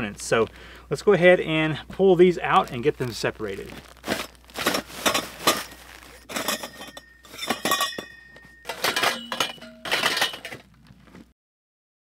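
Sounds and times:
metal poles clinking together: 4.2s - 10.7s.

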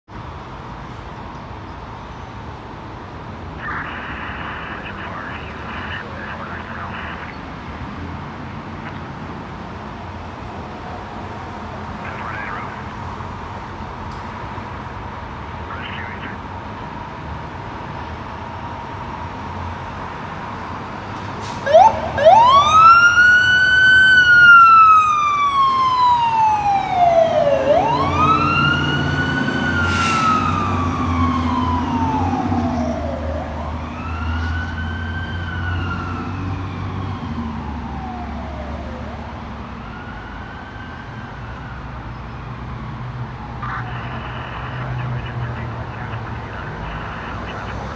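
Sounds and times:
fire engine siren wailing: 21.4s - 42.4s
truck engine rumble: 42.6s - 47.9s.

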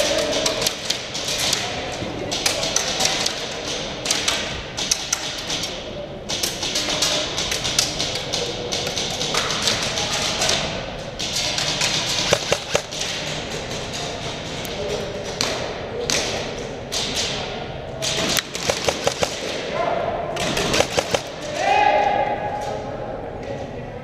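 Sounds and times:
airsoft gunshots echoing: 11.3s - 13.3s, 18.0s - 19.7s, 20.4s - 21.7s.

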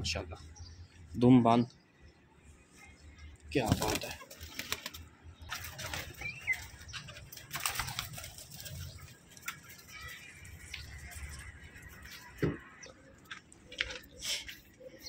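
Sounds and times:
pigeons flapping wings: 3.6s - 12.0s
high bird chirp: 5.3s - 13.1s.

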